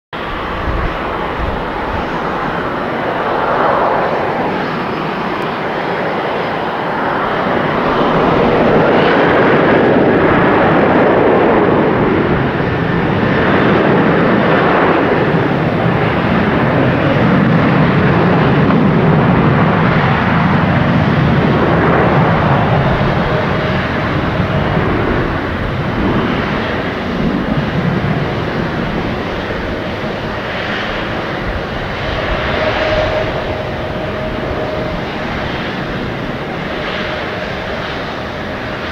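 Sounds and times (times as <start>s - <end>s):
jet engine roar: 0.1s - 38.9s.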